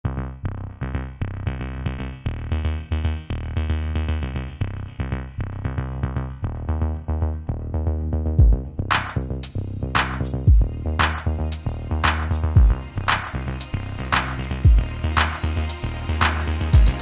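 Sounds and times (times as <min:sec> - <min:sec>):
deep bass hit: 0:08.4 - 0:17.0
electronic music with drum machine: 0:08.4 - 0:17.0.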